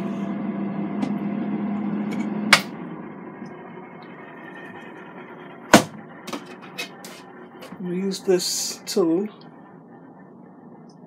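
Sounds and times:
oven fan humming: 0.0s - 11.0s.

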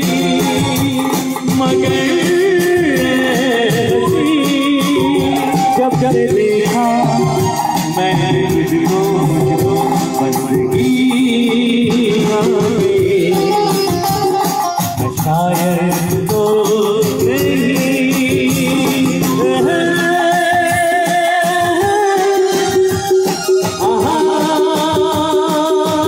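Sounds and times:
keyboard: 0.0s - 26.0s
man singing into a microphone: 0.0s - 26.0s
percussion: 0.0s - 26.0s.

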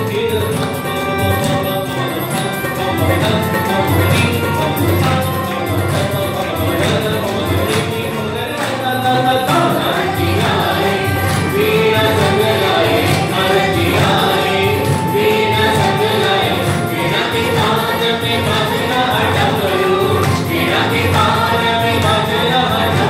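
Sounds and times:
hand-clapping beat: 0.0s - 23.0s
women singing in chorus: 2.4s - 23.0s.

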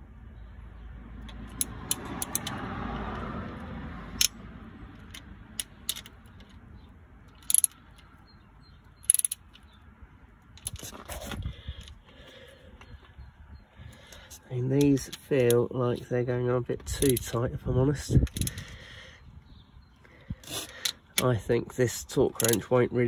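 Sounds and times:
wrench clicking and clinking: 1.3s - 2.6s, 4.2s - 6.6s, 7.3s - 8.1s, 9.0s - 9.7s, 16.9s - 17.4s, 22.4s - 22.7s.

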